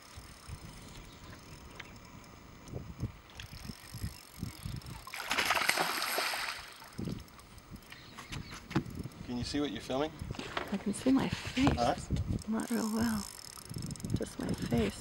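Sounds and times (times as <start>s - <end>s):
fish thrashing and splashing water: 4.9s - 7.0s.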